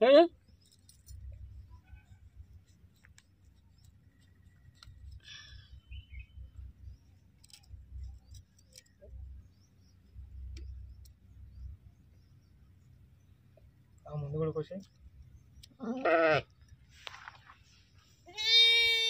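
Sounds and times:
blade clicking and scraping hoof: 0:00.5 - 0:05.7, 0:07.1 - 0:09.0.

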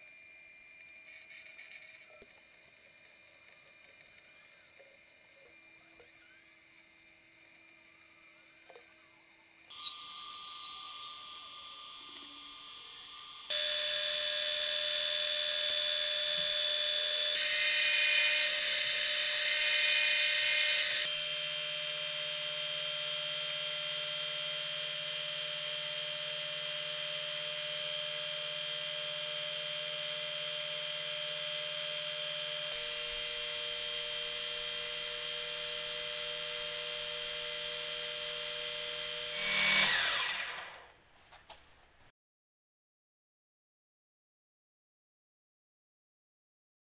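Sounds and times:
metal lathe whine: 0:09.4 - 0:40.9.

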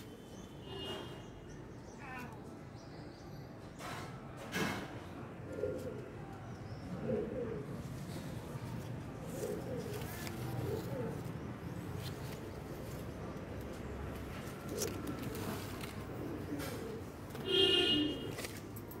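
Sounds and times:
dove cooing: 0:05.3 - 0:18.5.

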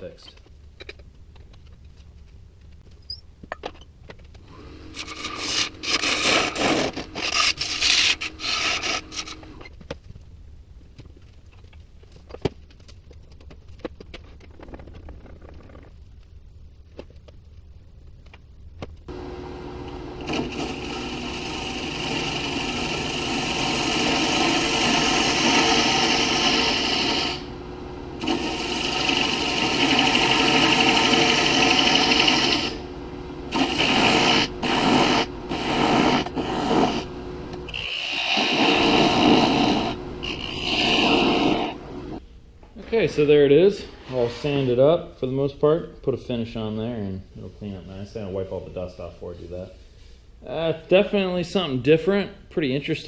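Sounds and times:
lathe motor whine: 0:19.1 - 0:42.2
sanding hiss: 0:20.6 - 0:27.5, 0:28.2 - 0:32.8, 0:33.5 - 0:37.1, 0:37.7 - 0:42.2.

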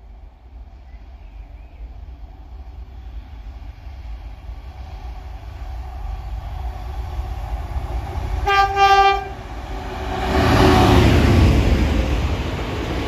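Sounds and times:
locomotive engine and wheel rumble: 0:00.0 - 0:13.0
locomotive horn: 0:08.4 - 0:09.4.

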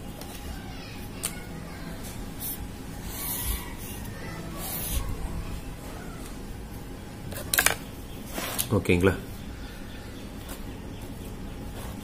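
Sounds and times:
pen scratching on paper: 0:02.4 - 0:05.1.

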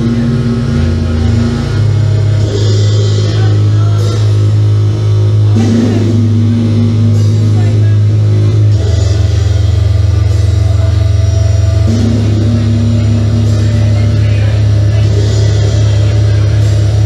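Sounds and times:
bass drone: 0:00.0 - 0:17.0
higher synth tone: 0:00.0 - 0:17.0.

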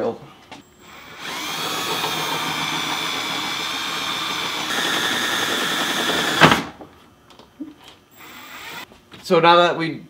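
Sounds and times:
cordless drill whining: 0:00.8 - 0:06.7, 0:08.2 - 0:08.9.

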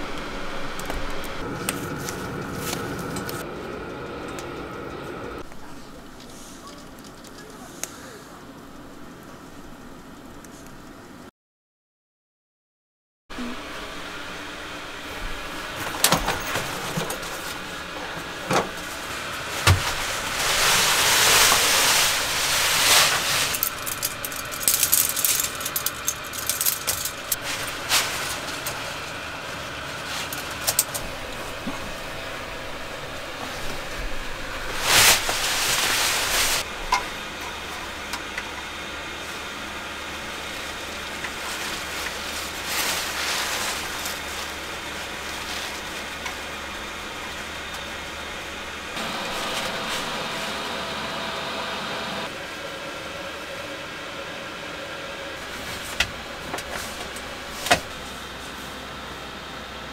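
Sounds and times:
steady low hum: 0:00.0 - 0:11.3, 0:13.3 - 0:59.9
fabric rustling: 0:18.7 - 0:32.1, 0:33.4 - 0:36.7, 0:41.3 - 0:46.2.

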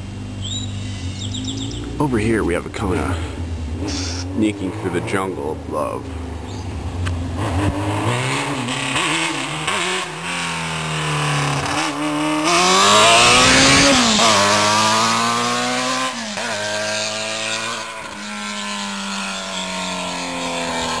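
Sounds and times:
motorcycle engine with open pipes: 0:00.0 - 0:07.3, 0:13.5 - 0:21.0.

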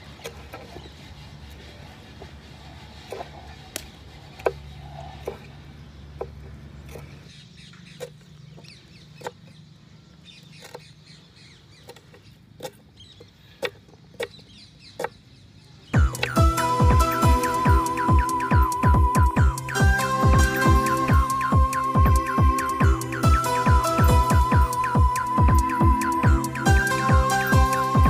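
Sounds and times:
low hum: 0:16.0 - 0:28.0.

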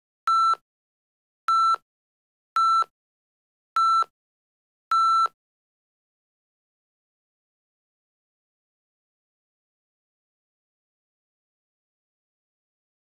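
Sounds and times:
electronic countdown beeps: 0:00.3 - 0:00.6, 0:01.5 - 0:01.8, 0:02.6 - 0:02.9, 0:03.8 - 0:04.1.

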